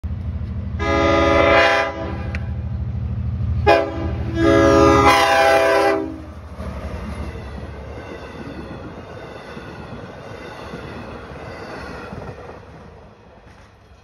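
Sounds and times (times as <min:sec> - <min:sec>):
train rumble: 0:00.0 - 0:14.0
train air horn: 0:00.8 - 0:02.5, 0:03.6 - 0:06.3.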